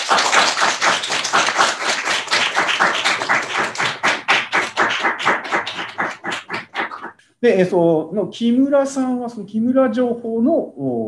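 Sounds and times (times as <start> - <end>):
hands clapping: 0.0 - 7.2.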